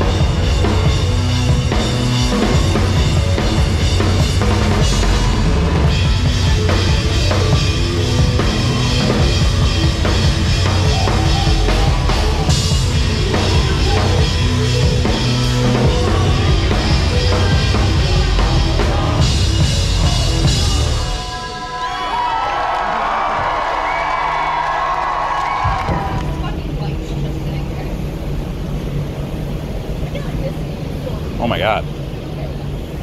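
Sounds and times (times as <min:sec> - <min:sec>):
live rock band playing: 0:00.0 - 0:21.3
drum kit: 0:00.0 - 0:21.4.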